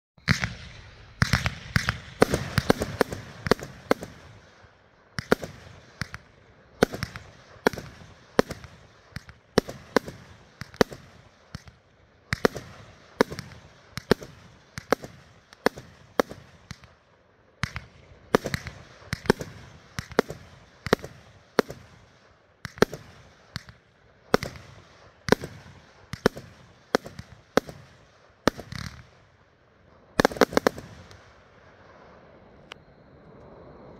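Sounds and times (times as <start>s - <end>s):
firework cake bangs: 0.2s - 4.4s.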